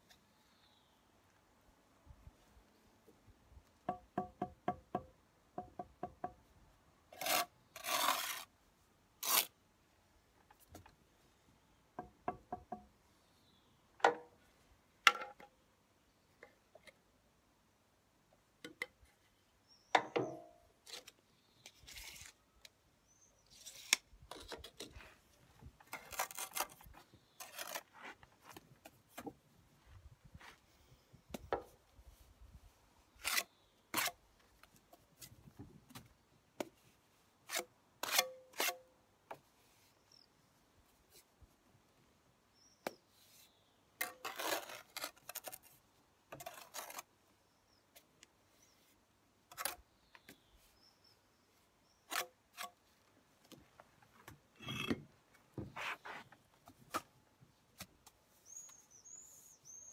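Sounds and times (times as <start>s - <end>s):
trowel scraping wet mortar: 7.2s - 8.5s, 44.1s - 45.7s.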